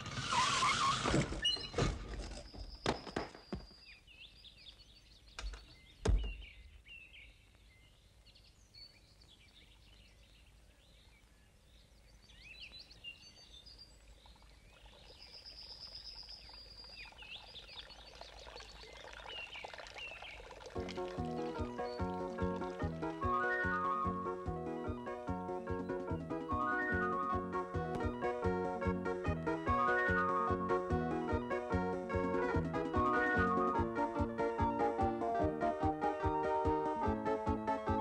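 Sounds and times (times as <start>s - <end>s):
birds chirping and whistling: 0.1s - 8.0s, 21.4s - 24.3s, 25.7s - 27.5s, 29.7s - 30.7s, 33.0s - 33.8s
dull thumps: 5.4s - 6.6s.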